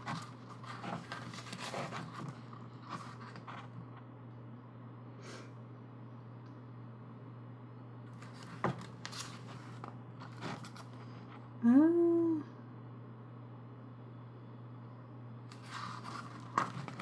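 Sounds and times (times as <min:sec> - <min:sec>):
paper pages rustling: 0:00.0 - 0:03.9, 0:08.2 - 0:11.2, 0:15.5 - 0:17.0
steady low hum: 0:00.0 - 0:17.0.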